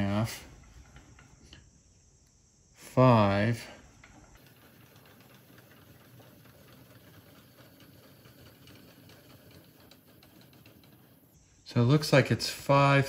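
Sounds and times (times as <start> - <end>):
rapid mechanical clicking: 3.8 - 11.4.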